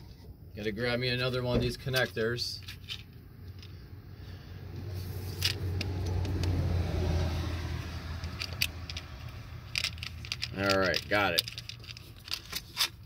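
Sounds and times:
passing vehicle rumble: 3.6 - 12.3
light clicks and rattles: 8.2 - 13.0.

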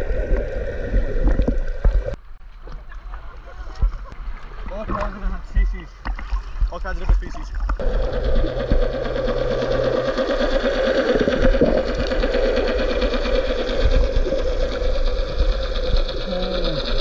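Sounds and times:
low steady drone: 7.8 - 17.0
machine hum with fine rattle: 7.8 - 17.0.

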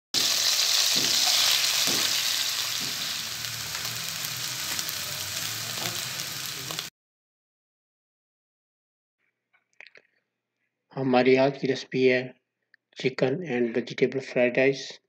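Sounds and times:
food sizzling in a frying pan: 0.1 - 6.9
spatula strokes in pan: 0.2 - 6.9.

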